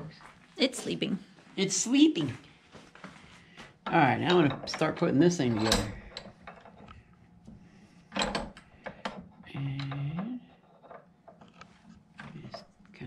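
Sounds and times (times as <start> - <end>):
metal vise clicks and clunks: 4.2 - 7.0, 8.1 - 10.1.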